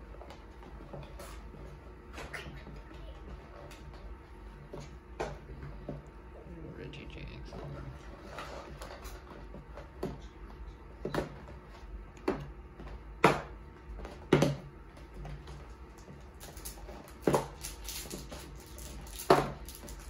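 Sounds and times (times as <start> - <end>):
card packs rustling: 16.3 - 20.0.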